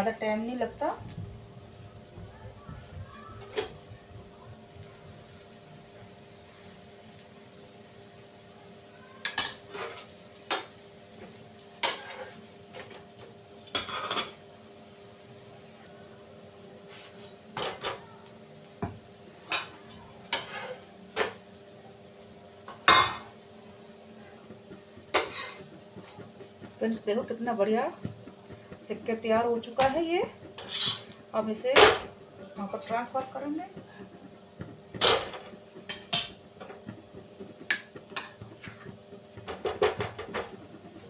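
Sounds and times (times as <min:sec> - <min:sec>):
metal spatula scraping griddle: 0:11.7 - 0:13.0, 0:19.6 - 0:21.3, 0:24.6 - 0:26.2, 0:29.4 - 0:31.2.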